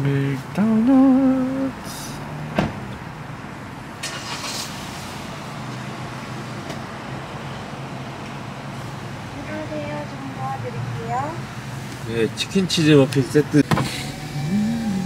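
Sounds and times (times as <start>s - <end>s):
car engine idling: 0.6s - 6.0s.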